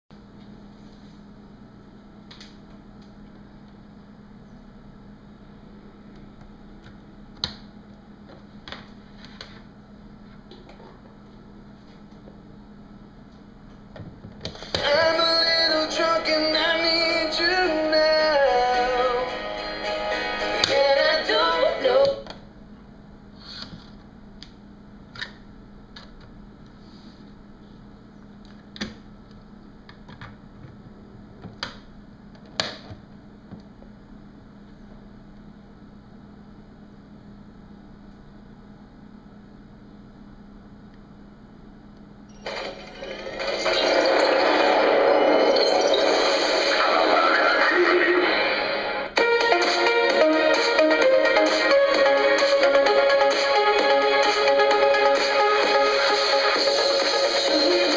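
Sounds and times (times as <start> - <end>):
steady low hum: 0.1 - 45.5.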